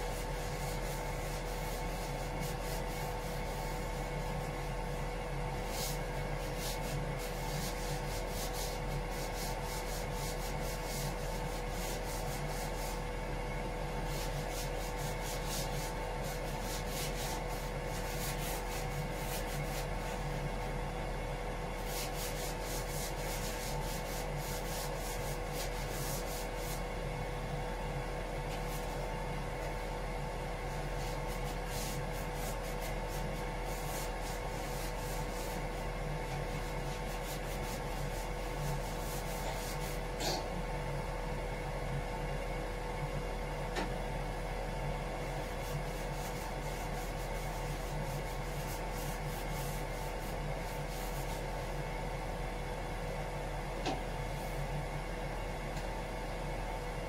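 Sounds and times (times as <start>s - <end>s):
steady hum: 0.0s - 57.0s
scratchy sanding strokes: 0.1s - 4.6s, 5.6s - 13.0s, 14.1s - 19.9s, 21.8s - 26.8s, 31.0s - 35.8s, 36.5s - 40.0s, 45.5s - 51.5s.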